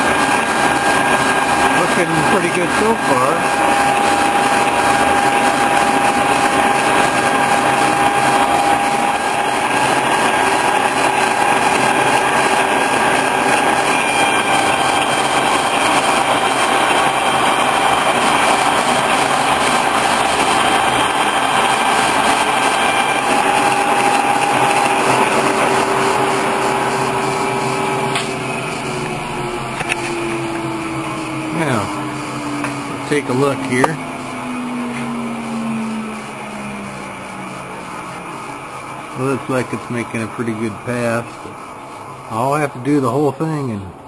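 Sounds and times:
milling machine drone and whine: 0.0s - 44.0s.

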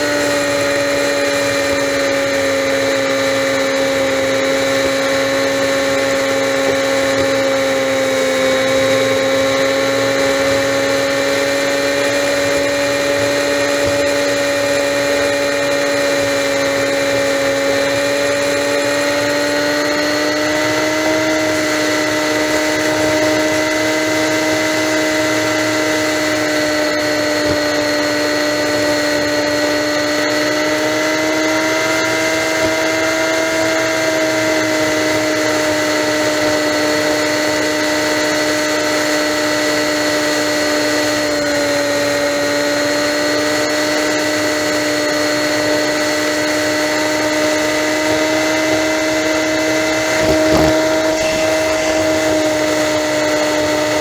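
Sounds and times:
motorcycle engine cruising: 0.0s - 54.0s.

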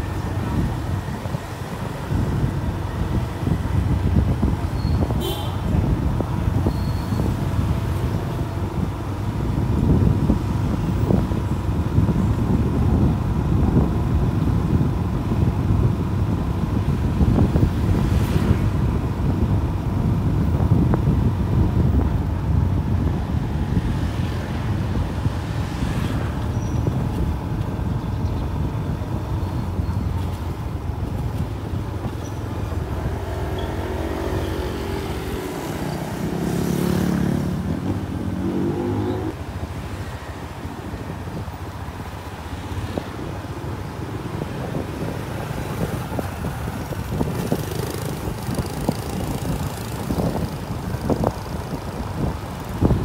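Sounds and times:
motorbikes and cars passing: 0.0s - 53.0s
road and wind rumble: 0.0s - 53.0s.

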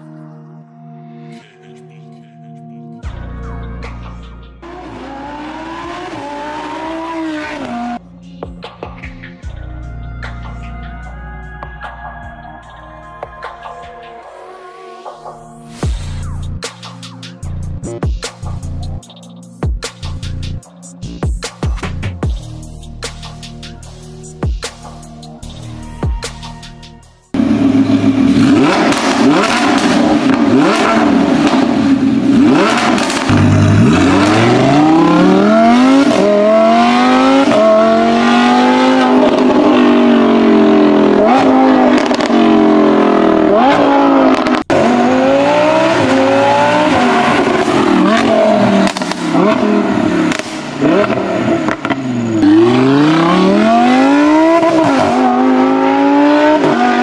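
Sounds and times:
sports car engine revving: 4.6s - 8.0s, 27.3s - 57.0s.

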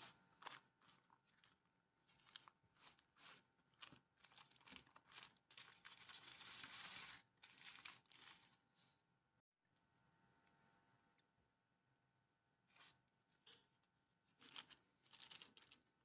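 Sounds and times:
baking paper crinkling: 0.0s - 9.0s, 14.3s - 16.0s.

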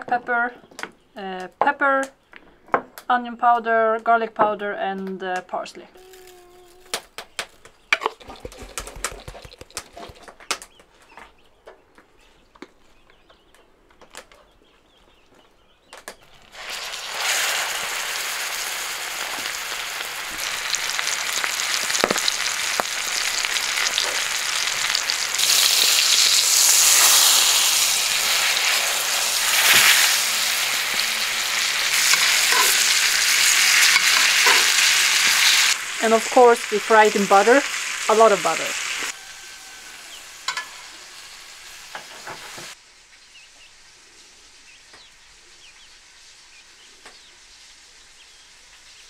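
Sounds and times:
meat sizzling in butter: 8.0s - 10.0s, 16.4s - 42.8s.

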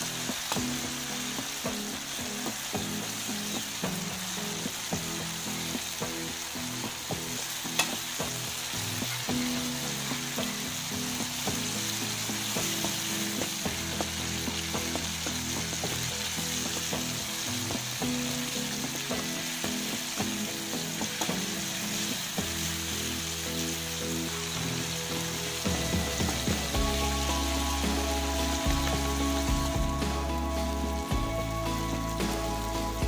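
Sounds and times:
tomatoes sizzling in oil: 0.0s - 33.0s.

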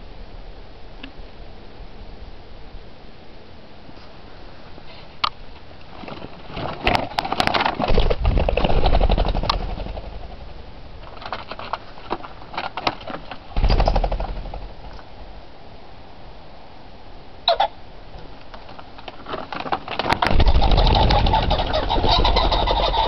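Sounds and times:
pheasant wingbeats whirring: 6.1s - 15.4s, 17.5s - 23.0s.

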